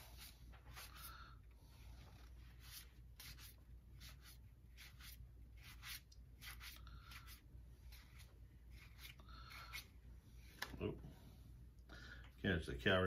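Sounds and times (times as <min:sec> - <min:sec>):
cards swishing against cards: 0:00.0 - 0:01.1, 0:02.1 - 0:10.8.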